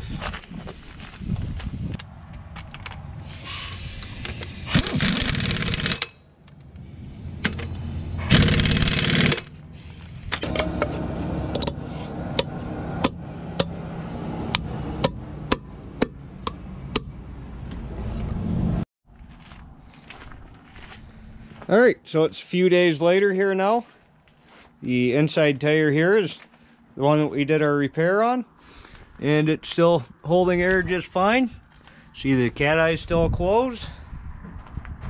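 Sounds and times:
air impact wrench hammering: 3.2s - 6.2s, 6.8s - 10.9s, 11.5s - 13.8s, 14.5s - 17.2s
sharp clicks: 4.0s - 6.6s, 8.3s - 9.5s.

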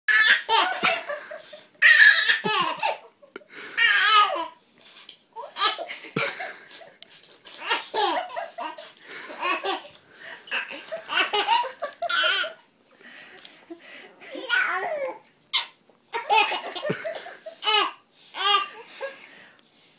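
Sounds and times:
baby laughing: 0.1s - 3.1s, 5.4s - 6.8s, 7.5s - 12.6s, 14.3s - 18.8s.

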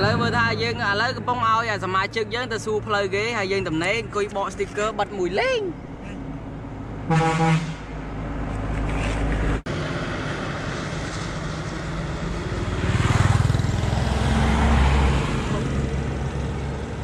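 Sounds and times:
vehicle engine rumble: 0.0s - 17.0s.

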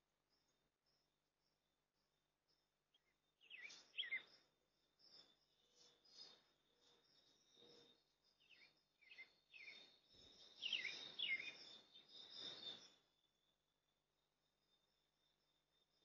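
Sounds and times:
birds chirping: 2.9s - 4.4s, 8.5s - 13.0s.

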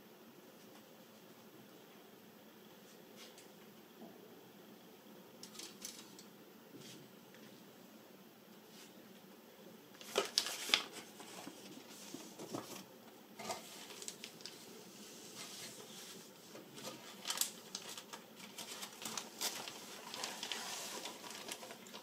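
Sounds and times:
paper rustling: 5.4s - 6.2s, 10.0s - 22.0s
plastic bag crinkling: 5.4s - 6.3s, 10.0s - 11.8s, 12.4s - 14.6s, 16.6s - 22.0s.

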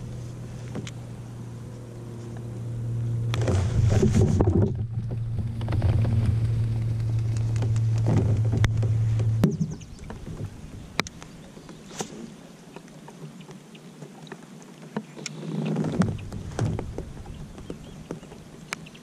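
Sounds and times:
kayak pedal drive humming: 0.0s - 19.0s
knocks and clatter: 3.4s - 10.6s, 15.8s - 18.4s.

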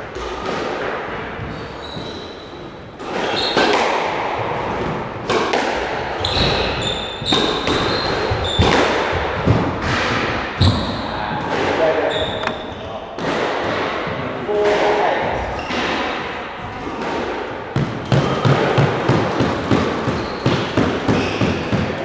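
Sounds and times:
squash ball smacking rackets and walls: 0.0s - 22.0s
shoes squeaking on wooden floor: 6.2s - 8.9s, 10.6s - 13.1s.

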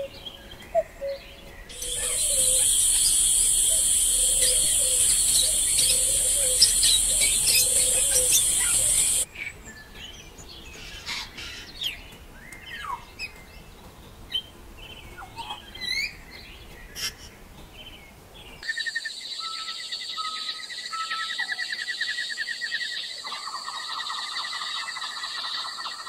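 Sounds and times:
birds chirping and whistling: 0.0s - 10.2s
rapid pulsing trill: 1.7s - 9.2s.

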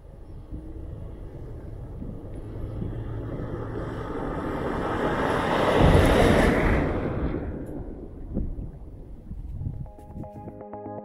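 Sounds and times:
car engine approaching: 0.0s - 9.5s
tyres on dirt road: 0.0s - 10.6s.

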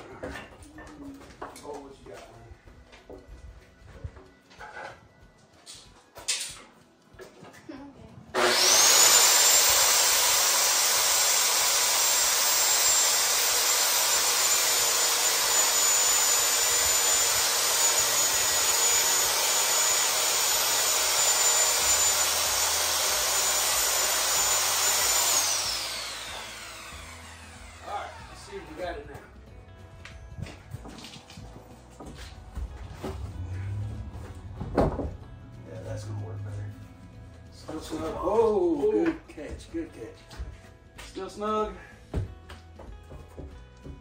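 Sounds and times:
electric saw whining: 8.3s - 29.2s, 32.9s - 35.1s.

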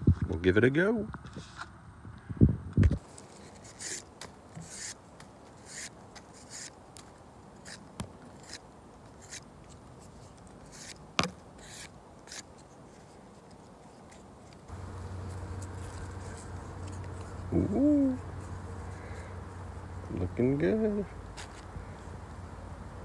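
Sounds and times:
knife scraping wooden stick: 3.3s - 5.0s, 5.6s - 6.8s, 7.6s - 11.0s, 11.6s - 14.6s.

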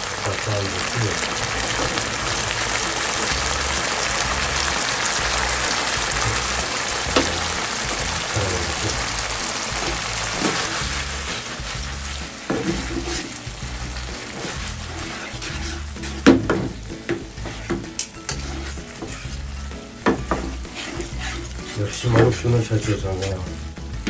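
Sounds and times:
food sizzling in a pan: 0.0s - 24.0s
utensil knocking on pan: 6.0s - 8.2s, 12.5s - 13.3s, 15.4s - 19.3s, 20.0s - 21.4s.

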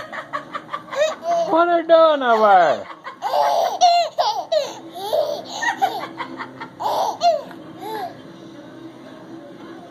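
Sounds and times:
baby laughing: 0.8s - 1.6s, 2.3s - 8.2s.

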